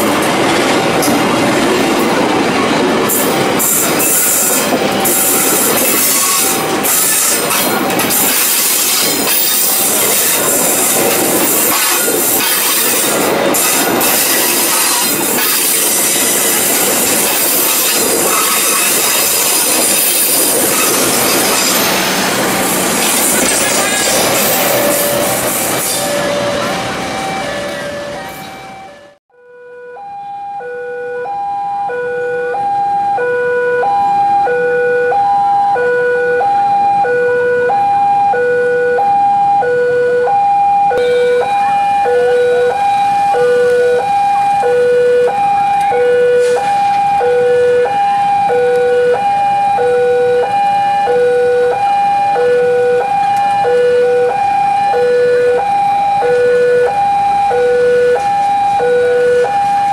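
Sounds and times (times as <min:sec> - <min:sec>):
level crossing two-tone alarm: 0:26.0 - 0:59.9.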